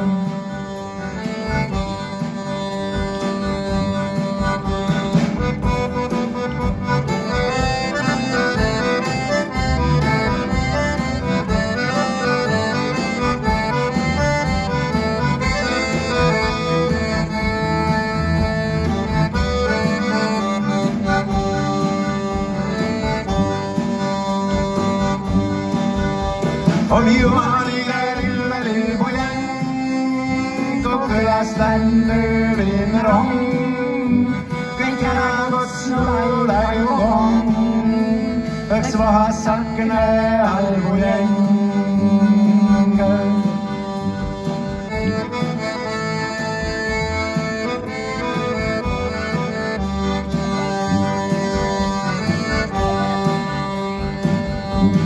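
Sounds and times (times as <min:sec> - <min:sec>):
accordion chords: 0:00.0 - 0:55.0
double bass: 0:00.0 - 0:55.0
folk band playing: 0:00.0 - 0:55.0
person singing: 0:26.8 - 0:44.0.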